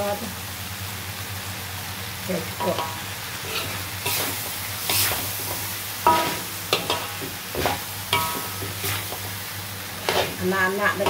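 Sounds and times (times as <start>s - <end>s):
food sizzling: 0.0s - 11.0s
metal spatula scraping a wok: 2.6s - 11.0s.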